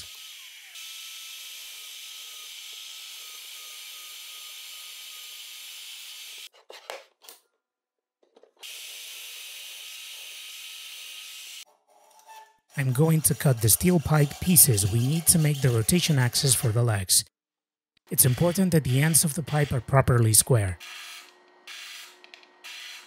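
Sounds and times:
drill press boring wood: 0.0 - 6.5.

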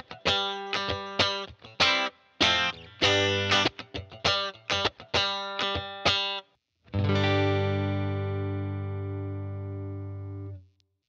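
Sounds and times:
clean electric guitar chords: 6.9 - 10.6.

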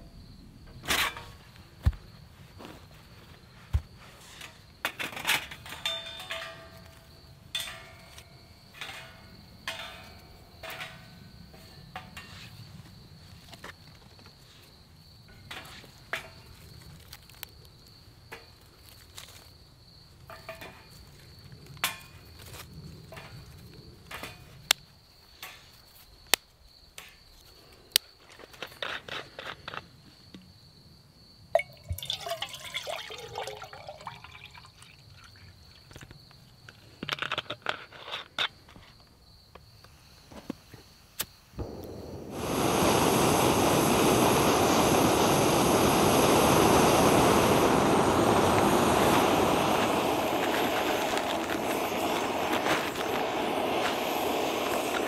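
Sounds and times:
steel panels clinking: 4.9 - 12.4
water pouring into pot: 31.6 - 35.8.

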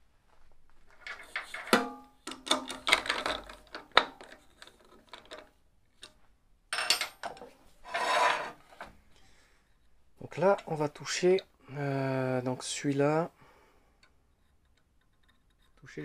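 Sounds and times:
wooden parts knocking and clattering: 0.9 - 7.6.

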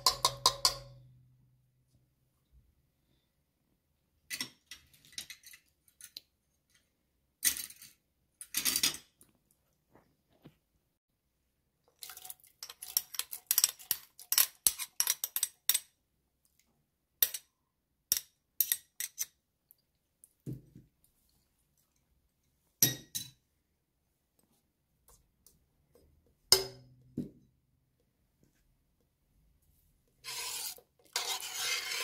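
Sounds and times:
utensils clinking on steel pot: 0.0 - 1.0.

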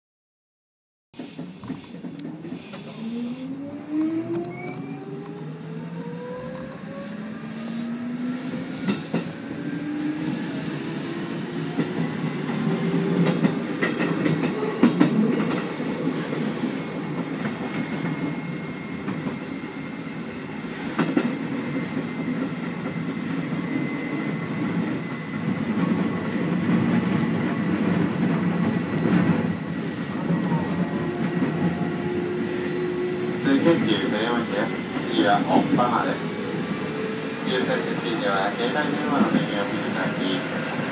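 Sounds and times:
train wheel rumble: 1.2 - 40.9
train traction motor whine: 1.4 - 13.8, 28.7 - 40.9
rail-joint clacks: 8.6 - 9.4, 11.7 - 16.4.

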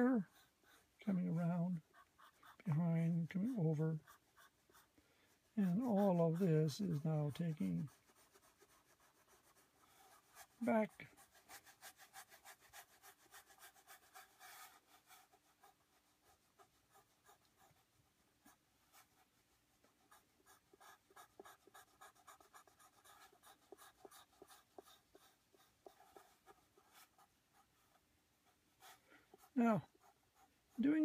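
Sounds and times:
pencil scratching on paper: 0.0 - 31.0.

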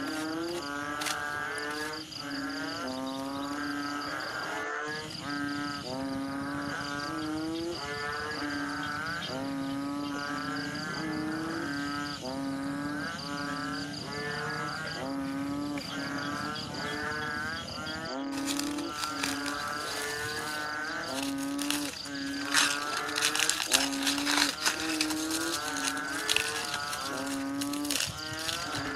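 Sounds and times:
aluminium foil crackling: 18.3 - 28.9.

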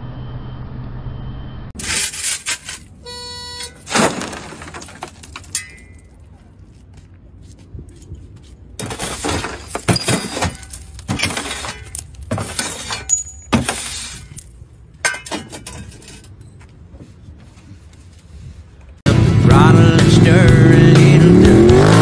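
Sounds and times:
shovel striking windscreen: 1.8 - 3.0, 3.6 - 6.1, 8.8 - 16.0
glass pieces clinking: 3.6 - 6.1, 9.0 - 16.3
glass cracking and crunching: 3.6 - 6.2.

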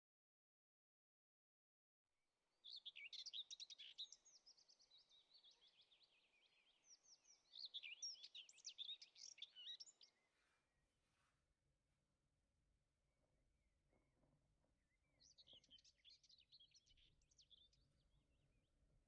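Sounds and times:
songbird chirping and trilling: 2.5 - 10.5, 14.9 - 18.4.

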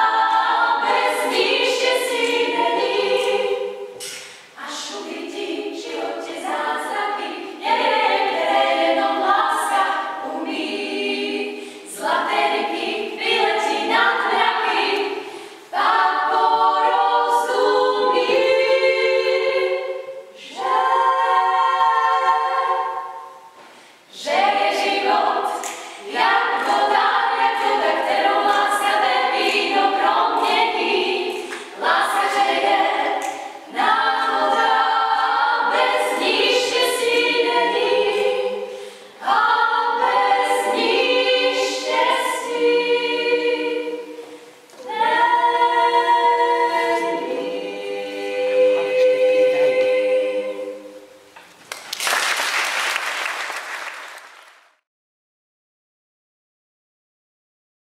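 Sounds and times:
women singing a cappella: 0.0 - 51.4.

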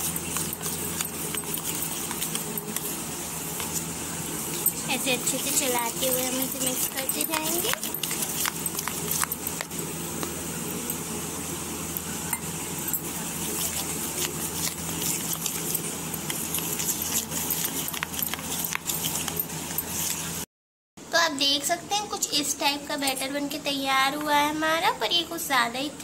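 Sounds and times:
spoon scraping steel bowl: 0.0 - 3.9, 4.5 - 10.0, 12.4 - 20.4
steady low hum: 0.0 - 21.1.

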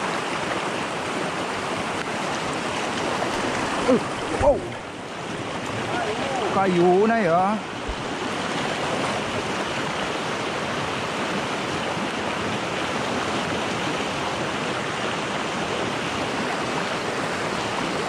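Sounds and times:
river rapids roaring: 0.0 - 18.0.

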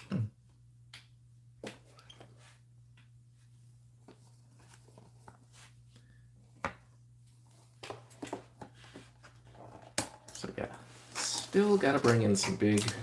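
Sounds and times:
cardboard rustling: 4.0 - 5.9, 7.4 - 13.0.

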